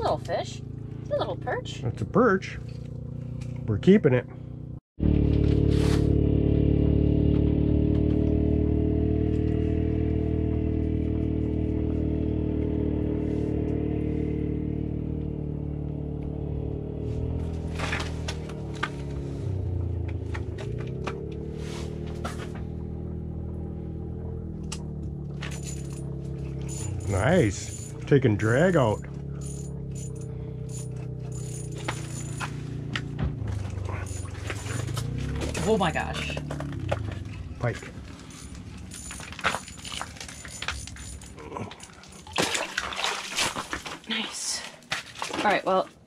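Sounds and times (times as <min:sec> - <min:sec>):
engine running: 0:00.0 - 0:46.0
steady low hum: 0:18.8 - 0:42.8.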